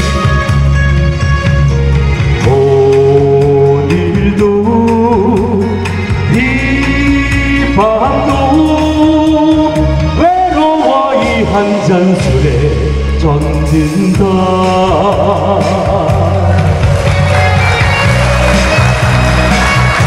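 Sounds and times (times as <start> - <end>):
loud backing music: 0.0 - 20.0
man singing into microphone: 2.3 - 16.8.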